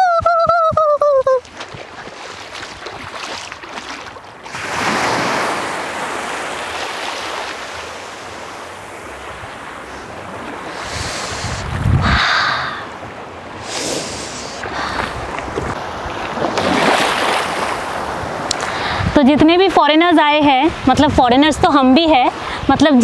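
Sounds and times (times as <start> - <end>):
small waves washing onto shore: 1.4 - 11.8, 12.6 - 19.2
wind buffeting microphone: 10.2 - 12.7, 14.7 - 23.0.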